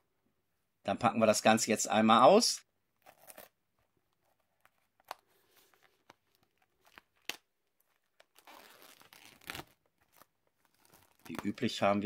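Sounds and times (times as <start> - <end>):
plastic wrapping crinkling: 3.0 - 12.0.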